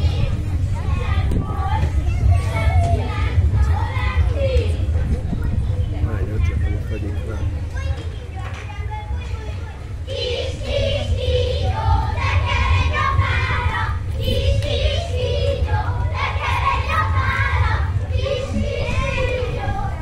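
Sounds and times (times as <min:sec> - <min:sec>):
children singing and calling: 0:00.0 - 0:20.0
low rumble: 0:10.0 - 0:20.0.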